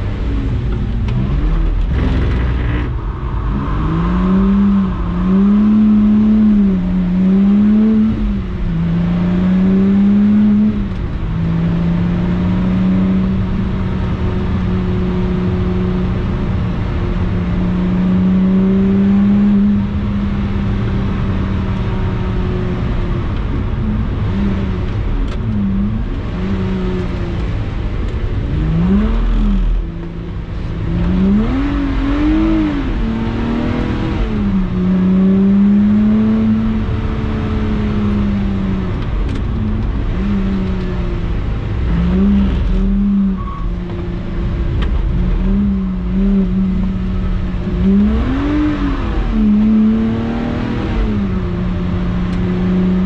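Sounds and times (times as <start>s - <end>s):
car engine revving: 0.0s - 53.0s.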